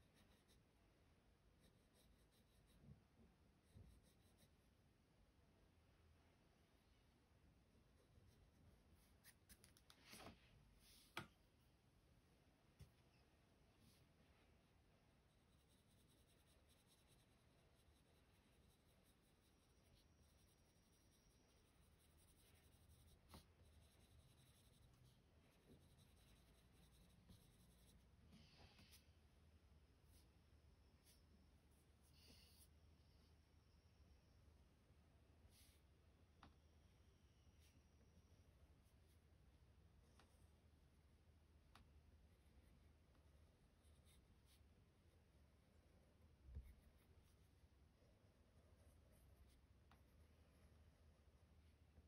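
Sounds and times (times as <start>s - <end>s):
pencil scratching on paper: 0.0s - 0.6s, 1.6s - 2.8s, 3.6s - 4.5s, 15.2s - 28.1s, 43.8s - 44.6s.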